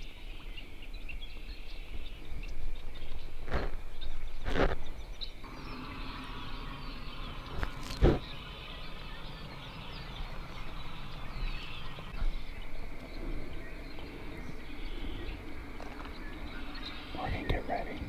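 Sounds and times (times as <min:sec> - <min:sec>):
distant ducks calling: 0:05.3 - 0:18.0.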